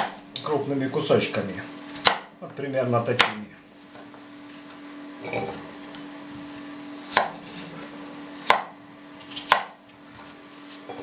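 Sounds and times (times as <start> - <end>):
knife chopping on wooden board: 0.0 - 0.2, 2.0 - 2.3, 3.2 - 3.4, 7.1 - 7.5, 8.4 - 9.8.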